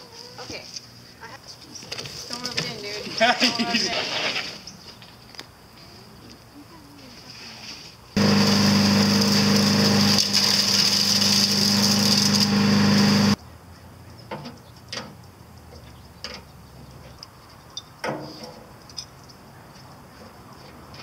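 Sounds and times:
chipper shredder engine running: 8.2s - 13.4s.

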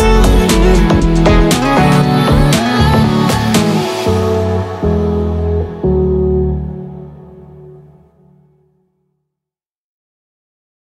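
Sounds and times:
dance-pop music: 0.0s - 7.8s.

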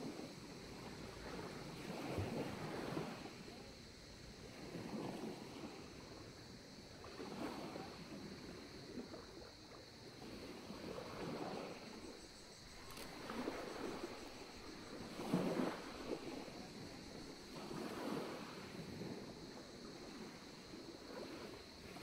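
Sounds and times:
small waves lapping on pebbles: 4.7s - 22.0s.

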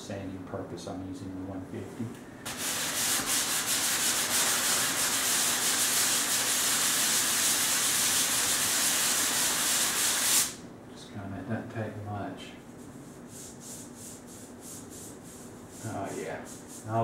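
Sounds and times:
sandpaper scraping: 2.5s - 10.6s, 12.8s - 17.0s.

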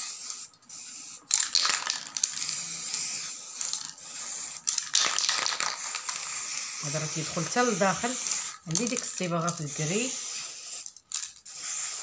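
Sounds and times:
spray paint can hissing: 0.0s - 12.0s.

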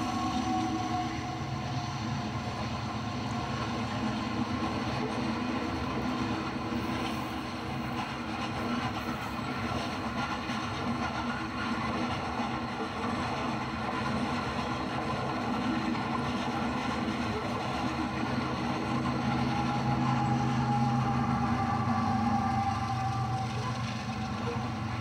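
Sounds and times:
model locomotive hum: 0.0s - 25.0s
wheels rolling on track: 0.0s - 25.0s.

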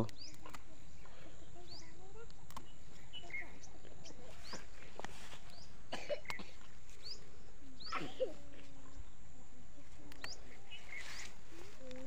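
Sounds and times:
outdoor background hiss: 0.0s - 12.0s
small birds chirping: 0.0s - 12.0s
leaves snapping: 2.4s - 2.7s.

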